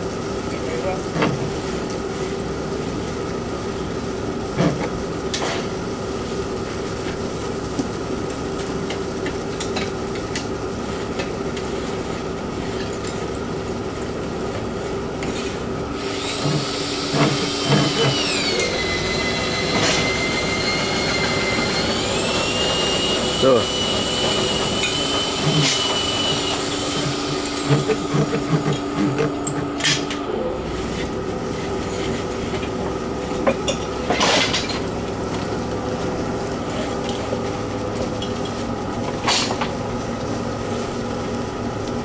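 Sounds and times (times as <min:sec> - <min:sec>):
insulation blowing machine running: 0:00.0 - 0:42.0
high whine: 0:16.0 - 0:31.2.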